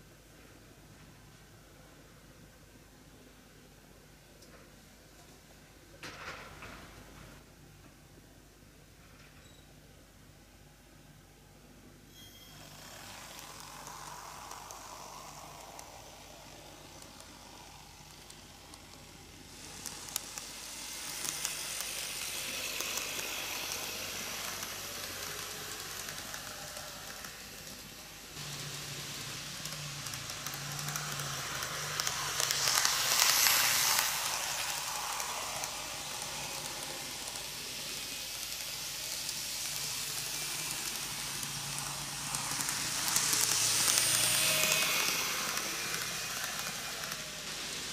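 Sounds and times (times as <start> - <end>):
model train motor hum: 12.3 - 47.9
model train wheels rattling: 12.5 - 47.9.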